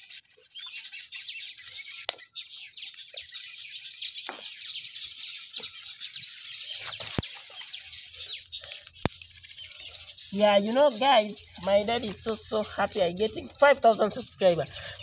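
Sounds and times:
small birds chirping: 0.0s - 15.0s
dry twigs clicking: 1.8s - 3.5s, 6.8s - 15.0s.

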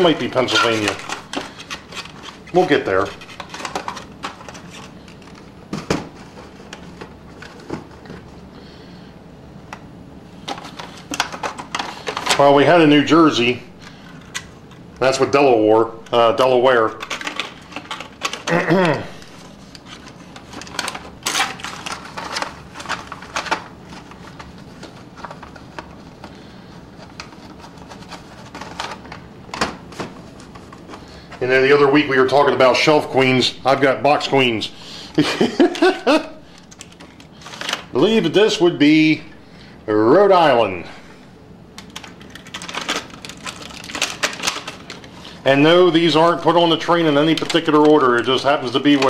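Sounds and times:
clicks and rustles of handling: 0.0s - 8.5s, 9.6s - 12.6s, 13.8s - 15.3s, 16.0s - 31.5s, 35.4s - 38.0s, 41.7s - 49.0s
cardboard boxes rustling: 19.3s - 31.4s.

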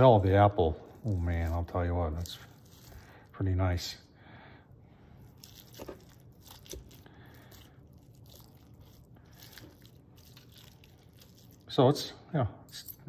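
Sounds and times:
meat tearing and crackling: 0.0s - 3.6s, 5.2s - 11.9s.

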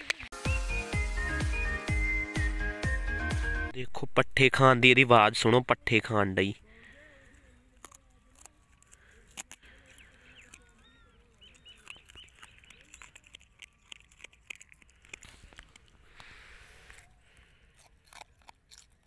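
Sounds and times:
puppy chewing stalks: 6.7s - 19.0s.

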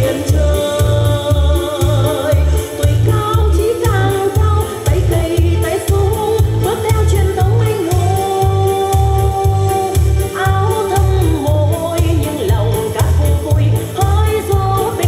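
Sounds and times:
backing music with bass beat: 0.0s - 15.0s
woman singing into microphone: 0.0s - 15.0s.

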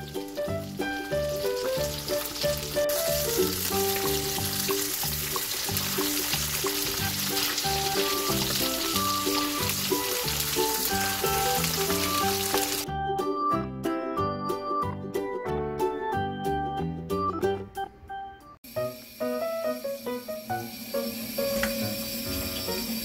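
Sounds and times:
fish sizzling in oil: 0.0s - 12.8s, 18.6s - 23.0s
background music: 0.0s - 23.0s.

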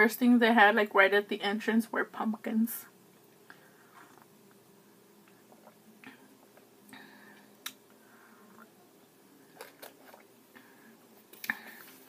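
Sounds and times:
sipping and swallowing: 5.2s - 6.7s.

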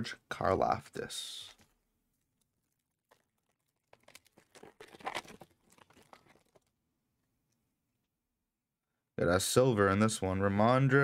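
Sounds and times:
foil pack tearing and crinkling: 2.6s - 6.7s.

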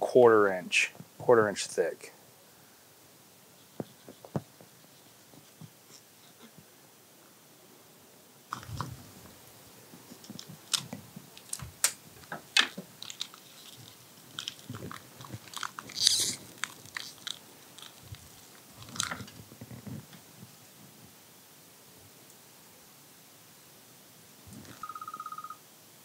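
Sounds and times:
paper and wrapping crinkling: 8.5s - 20.0s.

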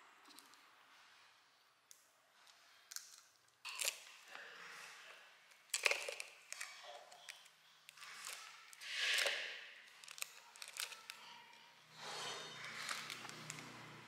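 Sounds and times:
candy wrappers crinkling: 2.9s - 4.9s, 5.5s - 11.7s, 12.6s - 14.0s.

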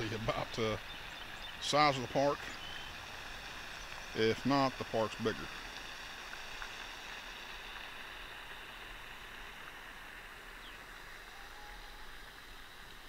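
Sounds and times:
soft outdoor hiss: 0.0s - 13.0s
faint bird chirp: 0.6s - 3.0s, 10.6s - 12.3s.

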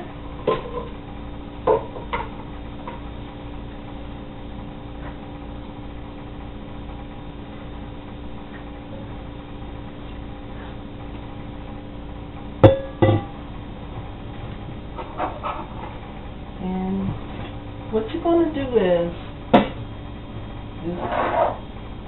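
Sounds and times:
steady low hum: 0.0s - 22.0s
metal bowl knocking against pot: 12.6s - 13.4s.

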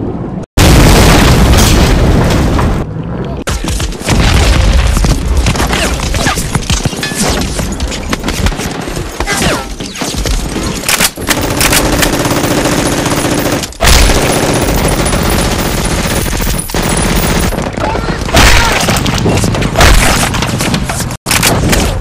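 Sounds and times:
machine-gun and rifle fire: 10.2s - 22.0s.

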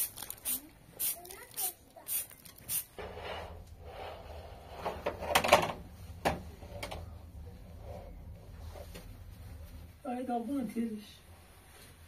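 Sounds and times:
low steady hum: 3.0s - 12.0s.

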